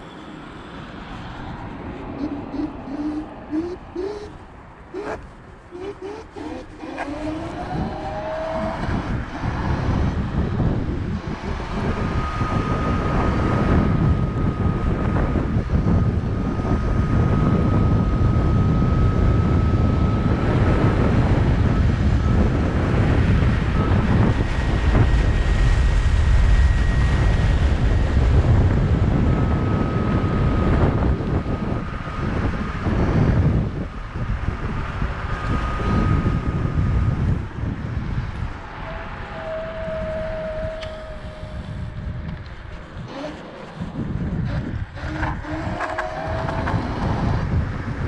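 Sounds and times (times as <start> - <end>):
road rumble: 0.0 - 48.0
short rising motor whine: 0.0 - 48.0
wind on microphone: 0.7 - 48.0
thin high whistle: 2.2 - 4.4, 38.8 - 42.2.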